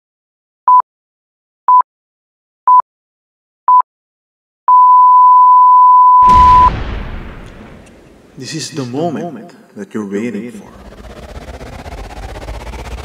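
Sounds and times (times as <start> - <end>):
long electronic beep: 4.7 - 6.8
short electronic beeps: 4.7 - 6.8.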